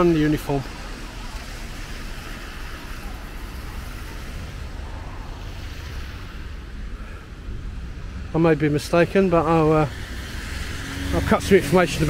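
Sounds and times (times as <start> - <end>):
road traffic rumble and hiss: 0.0 - 12.0.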